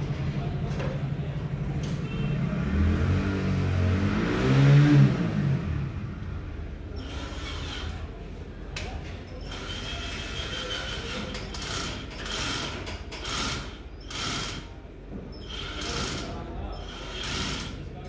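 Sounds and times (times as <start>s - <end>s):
cordless drill ratcheting bursts: 10.9s - 14.7s, 15.4s - 17.8s.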